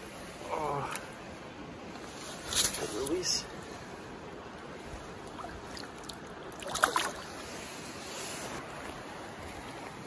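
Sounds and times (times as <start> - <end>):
stream water running: 0.0 - 10.0.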